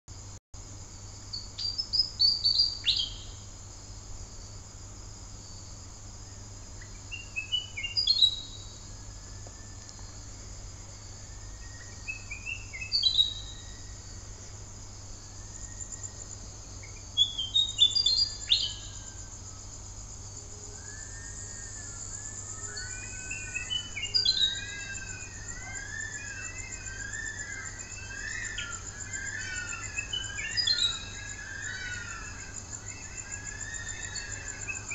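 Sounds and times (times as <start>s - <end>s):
birds wailing calls: 22.4s - 34.9s.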